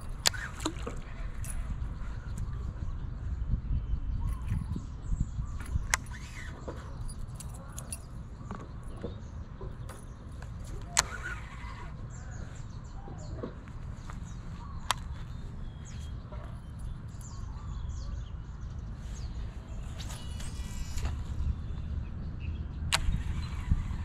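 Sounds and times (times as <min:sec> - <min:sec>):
wind rumble on microphone: 0:00.0 - 0:24.0
sharp clicks: 0:09.9 - 0:12.0, 0:22.8 - 0:24.0.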